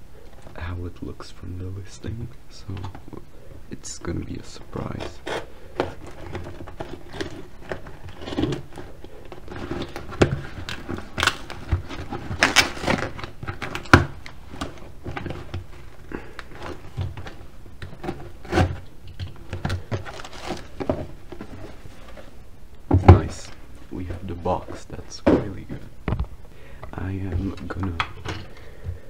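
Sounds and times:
packing paper rustling: 3.8s - 22.4s
cardboard scraping and clicks: 4.2s - 22.3s
knife cutting cardboard: 4.8s - 15.5s.

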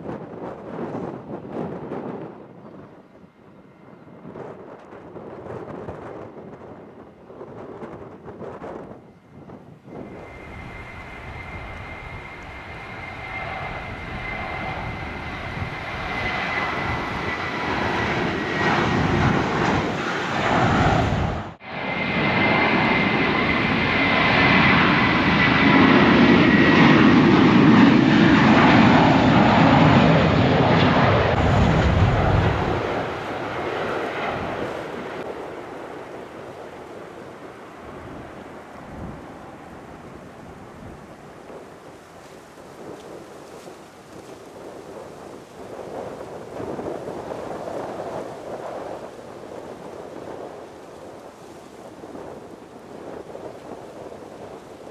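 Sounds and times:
jet engines whining and roaring: 0.0s - 54.9s
loud deep rumble: 28.6s - 33.6s.

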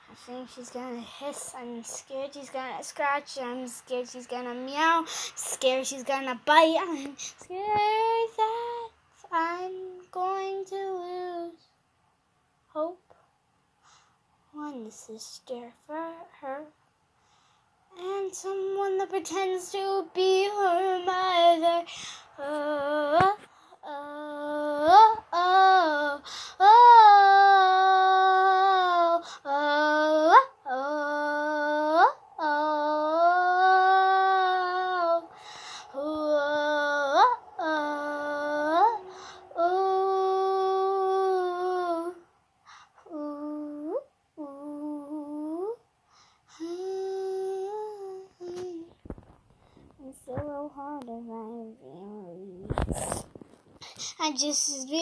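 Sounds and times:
child singing: 0.1s - 11.7s, 14.6s - 16.8s, 17.9s - 42.3s, 43.0s - 45.8s, 46.5s - 49.0s, 50.0s - 53.1s, 53.9s - 55.0s
child humming a slow tune: 23.8s - 35.3s, 35.9s - 42.2s, 43.0s - 45.8s, 46.6s - 49.0s.

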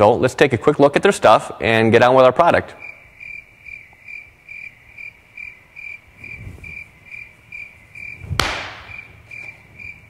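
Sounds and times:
insect-like chirp: 2.8s - 10.0s
sharp slap: 8.2s - 9.1s.

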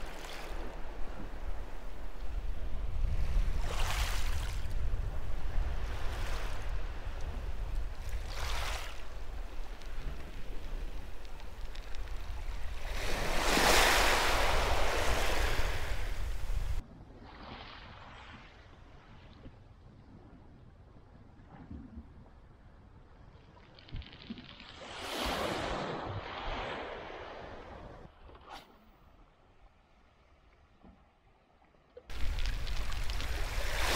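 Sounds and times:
wind rumble on microphone: 0.0s - 24.5s, 32.1s - 33.9s
waves washing on shingle: 6.2s - 16.8s, 32.1s - 33.9s.

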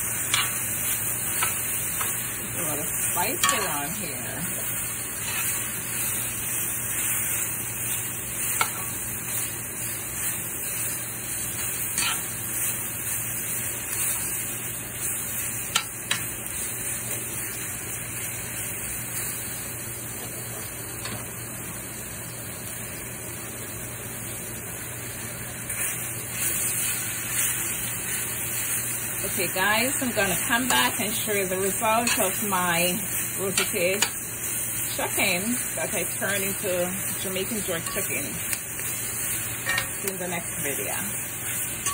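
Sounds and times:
vegetables sizzling in skillet: 0.0s - 41.9s
tongs clicking against pan: 0.3s - 0.6s, 3.3s - 3.8s, 11.9s - 12.3s, 15.7s - 16.3s, 32.0s - 32.4s, 33.5s - 34.2s, 39.6s - 40.2s.

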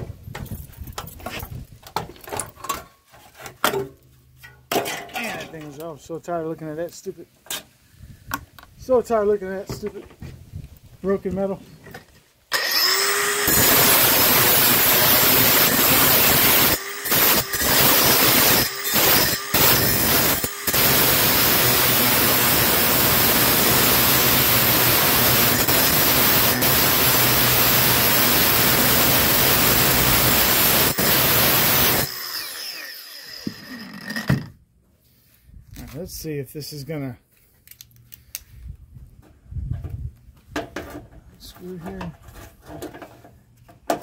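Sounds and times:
angle grinder grinding steel: 12.5s - 34.4s
grinder disc spinning down: 12.5s - 34.5s.

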